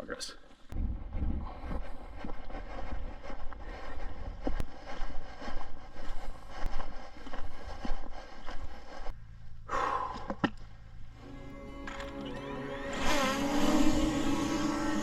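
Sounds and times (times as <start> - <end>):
wind buffeting microphone: 0.8 - 5.2.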